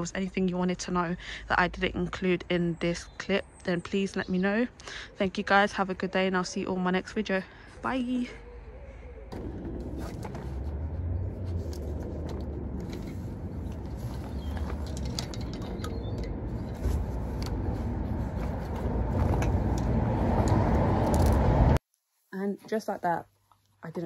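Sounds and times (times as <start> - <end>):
pushchair frame clicks and rattles: 12.8 - 17.6.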